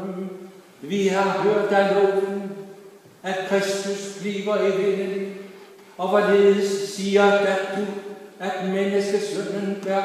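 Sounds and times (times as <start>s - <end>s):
man chanting: 0.0s - 10.0s.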